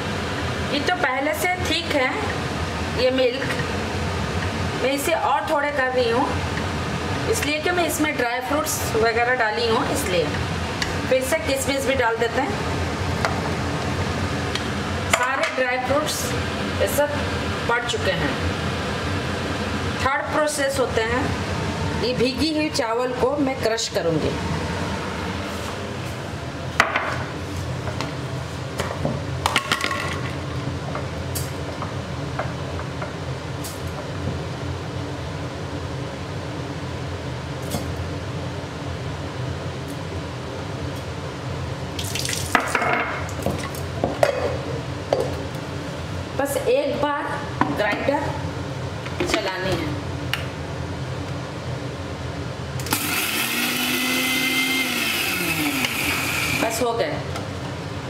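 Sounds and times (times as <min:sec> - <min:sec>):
steady background hum: 0:00.0 - 0:58.0
mixer grinder motor: 0:52.8 - 0:56.8.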